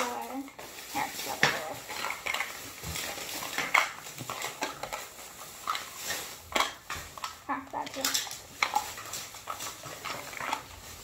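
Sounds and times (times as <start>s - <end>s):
plastic packaging crinkling: 0.0s - 11.0s
small clicks and crackles: 0.0s - 11.0s.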